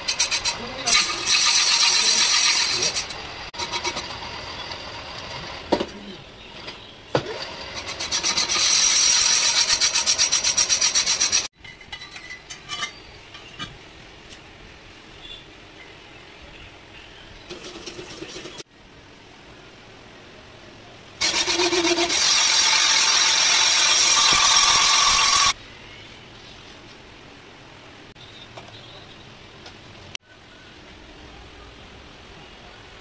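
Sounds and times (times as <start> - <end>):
lathe rasping on metal: 0.0 - 4.0, 21.2 - 25.6.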